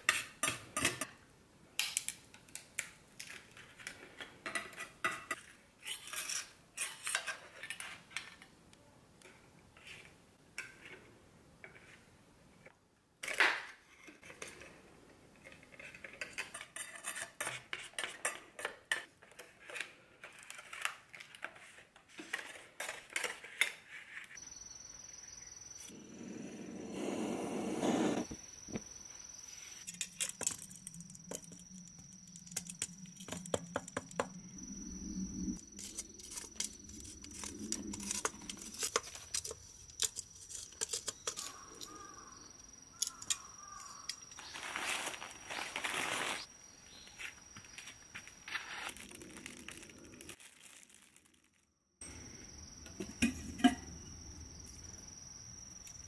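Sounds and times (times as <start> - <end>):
knife scraping shells: 4.7 - 8.2, 15.4 - 19.8, 35.8 - 42.3
high insect drone: 24.4 - 40.5, 41.2 - 50.4, 52.0 - 56.0
gas torch hissing: 26.2 - 28.8.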